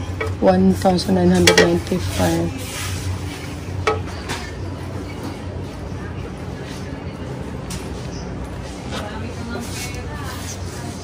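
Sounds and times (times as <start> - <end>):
steady low hum: 0.0 - 11.0
metal kitchenware clinking: 1.3 - 2.3.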